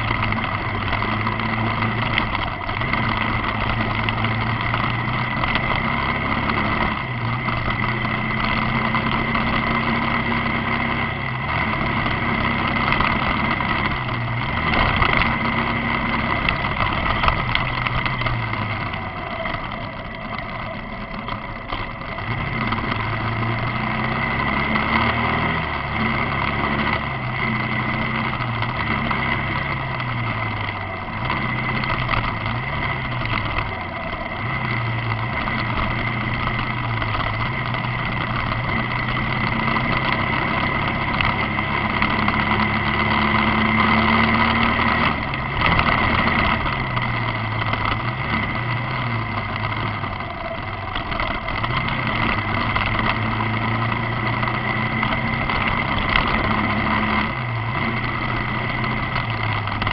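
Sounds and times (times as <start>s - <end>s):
motorcycle engine revving: 0.0s - 59.9s
steady rushing noise: 0.0s - 59.9s.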